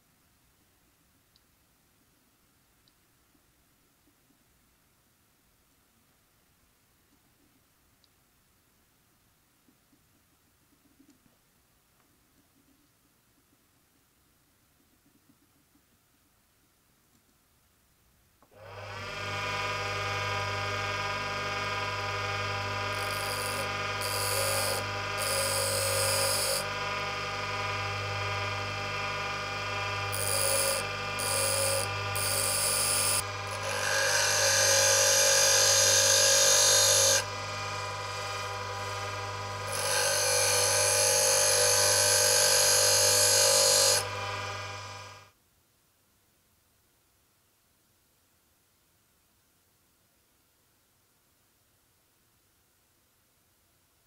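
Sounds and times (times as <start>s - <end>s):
bench grinder humming: 18.6s - 45.3s
drill bit grinding on wheel: 18.7s - 45.3s.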